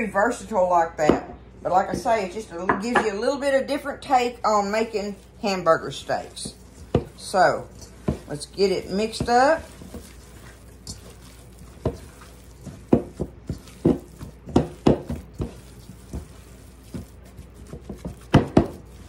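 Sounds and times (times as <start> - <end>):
hands squeezing ground meat: 4.7 - 19.0.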